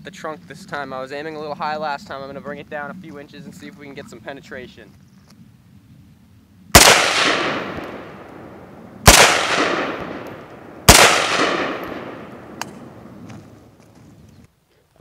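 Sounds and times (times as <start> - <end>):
rifle shots with echo: 6.7 - 13.7.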